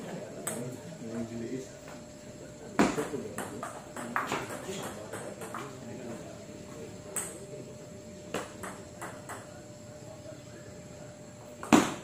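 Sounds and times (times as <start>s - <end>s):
table tennis ball knocking: 2.8s - 5.7s, 8.3s - 9.5s.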